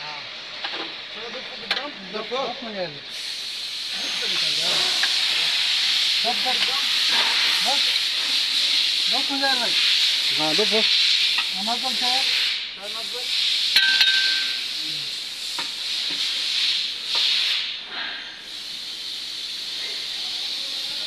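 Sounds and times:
steady hiss: 0:00.0 - 0:21.0.

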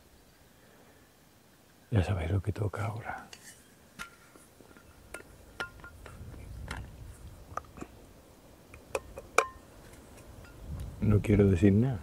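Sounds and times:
thermos lid clicks: 0:08.7 - 0:09.6.

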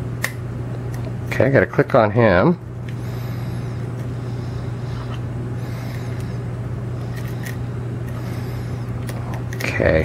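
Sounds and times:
low hum with hiss: 0:00.0 - 0:10.0.

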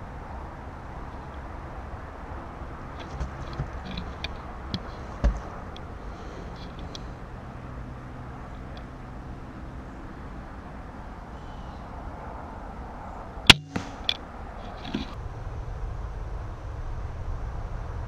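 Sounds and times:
faint knocks: 0:03.0 - 0:05.8
crossbow firing crack: 0:13.5 - 0:14.2.

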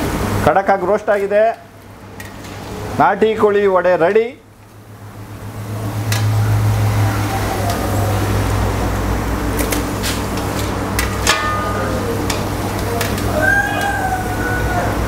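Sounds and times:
oil sizzling: 0:04.6 - 0:15.0.

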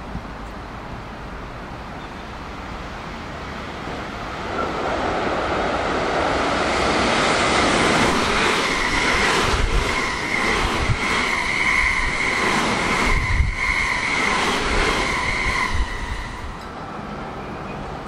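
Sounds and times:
electric train passing: 0:00.0 - 0:18.0
high-pitched whine: 0:07.7 - 0:16.7.

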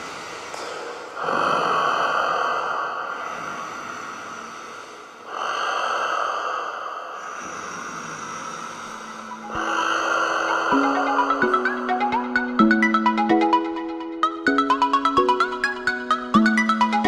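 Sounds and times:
quiet underwater breathing: 0:00.0 - 0:12.5.

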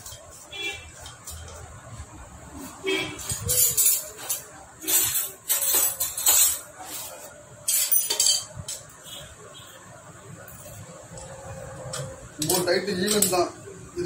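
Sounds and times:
small metal parts clinking: 0:03.2 - 0:06.8, 0:07.6 - 0:08.9.

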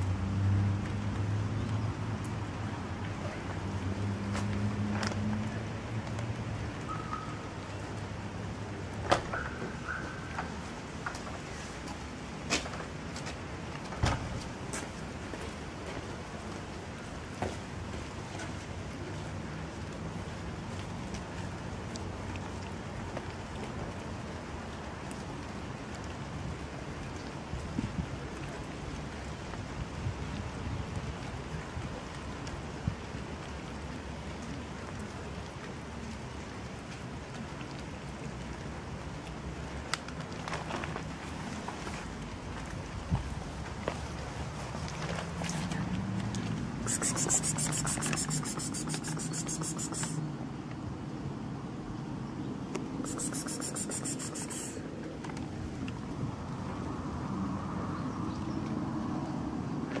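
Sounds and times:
light rain pattering: 0:00.0 - 0:53.1, 0:54.5 - 1:00.0
insect trilling: 0:46.9 - 0:50.2, 0:53.0 - 0:54.8
sharp ticks: 0:46.9 - 0:50.2, 0:53.0 - 0:54.8.

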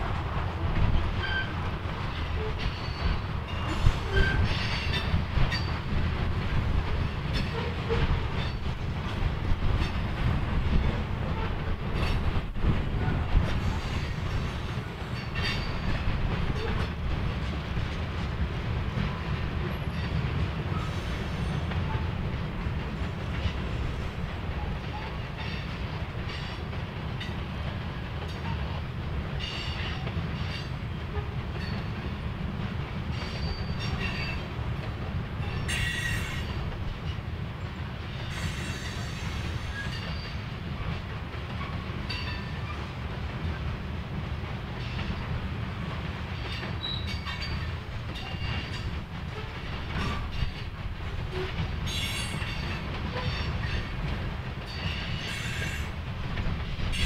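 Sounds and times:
train wheels rumbling on track: 0:00.0 - 0:57.0
wheel squeals: 0:33.2 - 0:34.4, 0:46.5 - 0:48.8.

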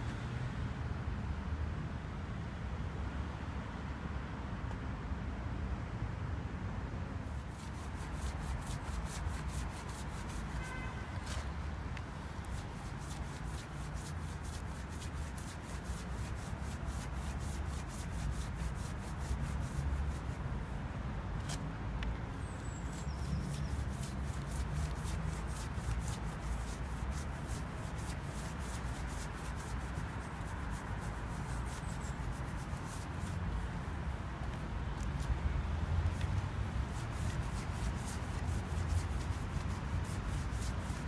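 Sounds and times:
brush scrubbing brick wall: 0:07.3 - 0:20.8, 0:22.4 - 0:35.4, 0:36.0 - 0:41.0.

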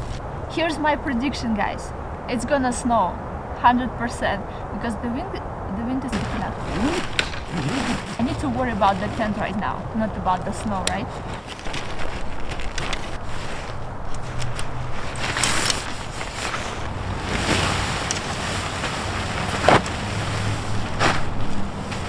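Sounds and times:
wind buffeting microphone: 0:00.0 - 0:22.0
sharp crack: 0:06.8 - 0:08.2.

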